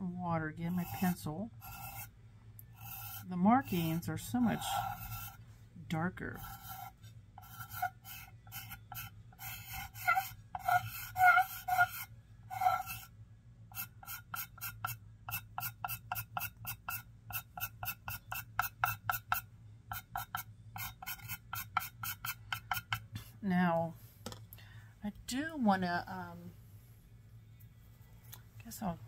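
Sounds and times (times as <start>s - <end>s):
pencil squeaking on clay plate: 0.8s - 2.1s, 2.8s - 5.4s, 6.3s - 13.1s, 13.7s - 23.1s.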